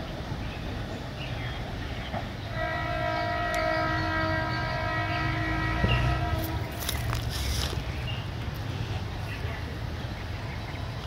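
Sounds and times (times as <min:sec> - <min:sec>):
train horn long blast: 0:02.5 - 0:07.1.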